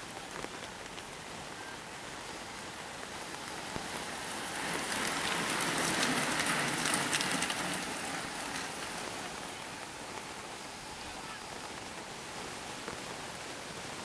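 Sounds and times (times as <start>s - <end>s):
bicycle tyres hissing on wet road: 0.0s - 14.0s
steady rain: 0.0s - 14.0s
bicycle clicks: 3.2s - 10.2s.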